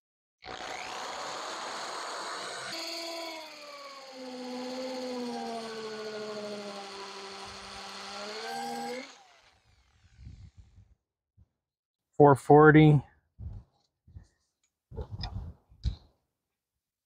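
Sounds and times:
hammer drill boring into brick: 0.4s - 10.6s.

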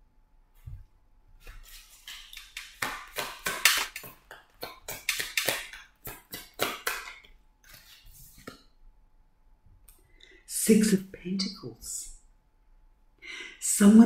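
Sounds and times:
cards being shuffled: 1.4s - 8.7s.

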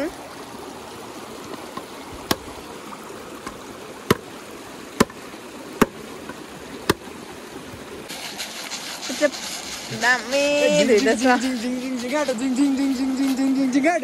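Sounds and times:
stream flowing: 0.0s - 14.0s
sharp knocks: 3.4s - 4.3s, 5.0s - 5.2s, 5.8s - 7.1s.

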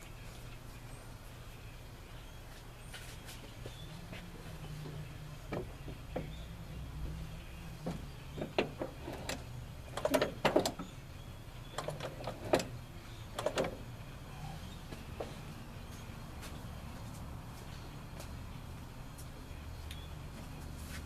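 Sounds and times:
throttle linkage clicks and clunks: 7.8s - 10.9s, 11.7s - 13.8s.

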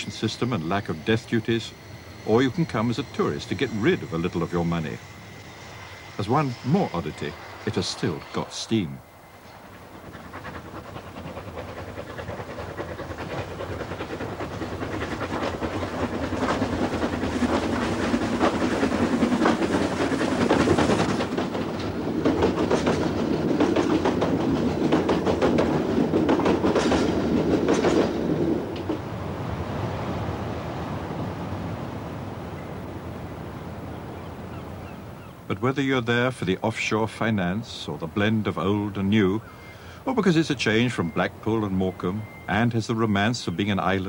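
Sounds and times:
steam train wheels clattering: 0.0s - 29.1s.

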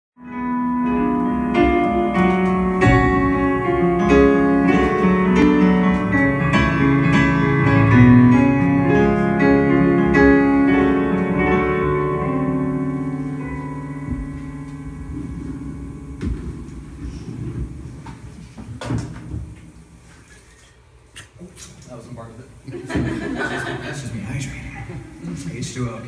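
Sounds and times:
piano chords and melody: 0.2s - 20.1s.

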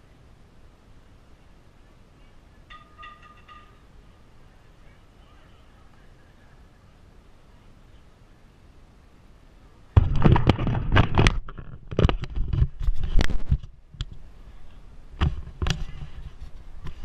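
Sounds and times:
camera handling knocks and scraping: 10.0s - 13.7s.

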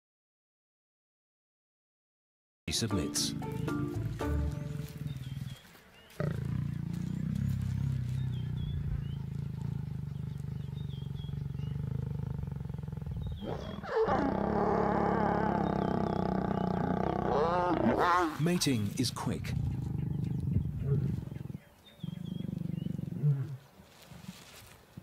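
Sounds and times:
lions growling: 3.5s - 23.7s
lioness snarling: 4.2s - 18.6s, 19.3s - 23.6s.

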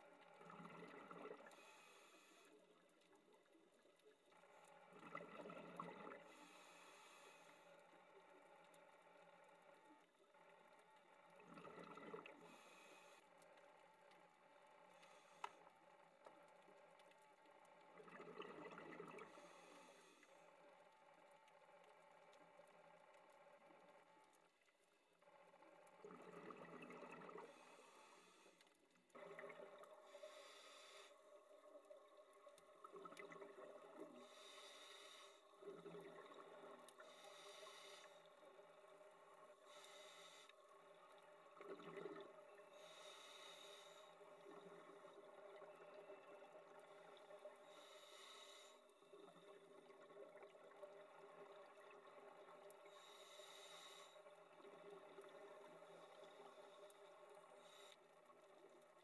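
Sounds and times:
exhaled bubbles: 0.2s - 1.6s, 4.9s - 6.4s, 11.4s - 12.6s, 17.9s - 19.4s, 26.0s - 27.8s, 29.1s - 30.2s, 31.5s - 34.5s, 41.4s - 42.9s
underwater diver breathing: 0.5s - 2.8s, 5.0s - 7.9s, 11.6s - 13.4s, 14.9s - 16.0s, 18.7s - 20.6s, 26.5s - 31.4s, 33.1s - 49.8s, 51.4s - 58.8s.

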